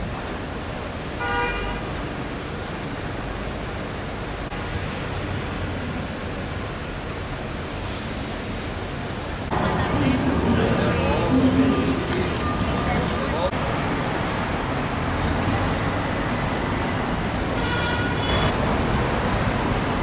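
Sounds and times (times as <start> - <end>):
road traffic noise: 0.0 - 20.0
car horn toot: 1.2 - 1.7, 17.6 - 18.6.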